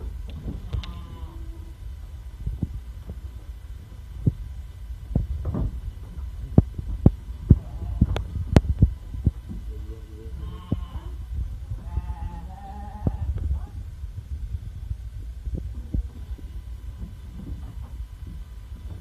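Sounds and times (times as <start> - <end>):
sheep bleating: 0.7 - 1.5, 10.4 - 11.2, 11.8 - 13.3.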